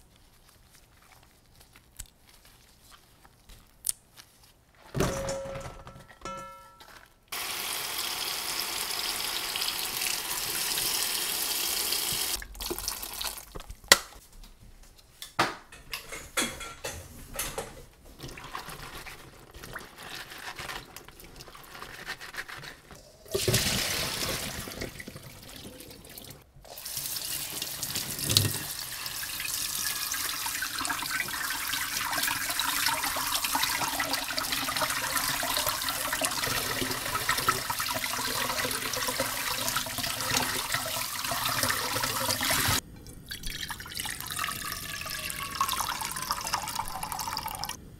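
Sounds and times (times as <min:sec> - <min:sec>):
wet handling of vegetables: 0:18.0 - 0:29.2.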